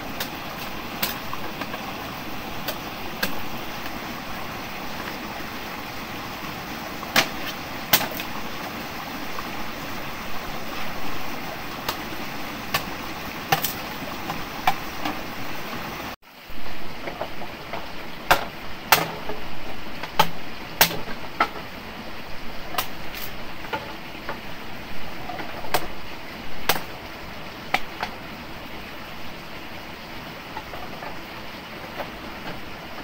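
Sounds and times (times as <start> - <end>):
sharp knocks: 18.3 - 19.4.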